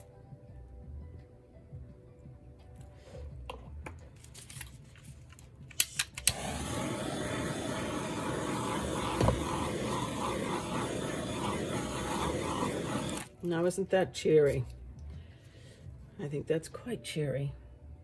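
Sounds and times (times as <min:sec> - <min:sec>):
torch igniter clicks: 0:05.7 - 0:13.3
torch flame hissing: 0:06.2 - 0:13.4.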